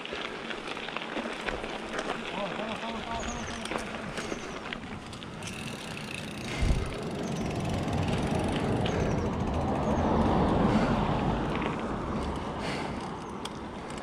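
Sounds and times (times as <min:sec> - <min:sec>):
bike tyres rolling on pavement: 0:00.0 - 0:14.0
wind noise: 0:06.5 - 0:12.3.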